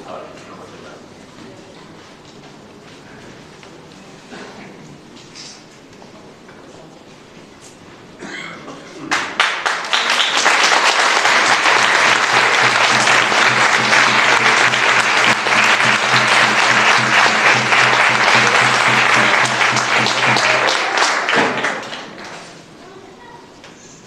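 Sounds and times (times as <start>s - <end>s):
audience applauding: 9.1s - 22.4s
music playing: 11.8s - 20.6s.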